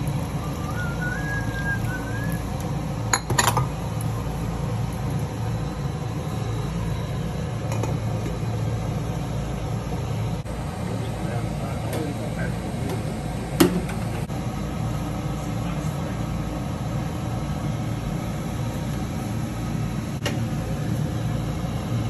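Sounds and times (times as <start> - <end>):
low rumble of stove: 0.0 - 22.0
faint wavering whistle: 0.2 - 2.6
cookware clattering: 3.2 - 3.7.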